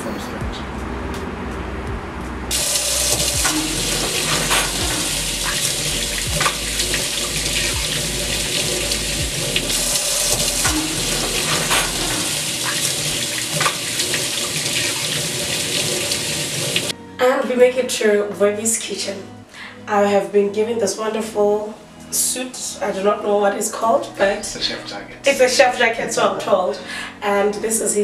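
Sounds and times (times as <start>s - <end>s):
splashes from hand washing: 2.5s - 9.6s, 10.3s - 16.9s
tap water running into sink: 2.5s - 16.9s.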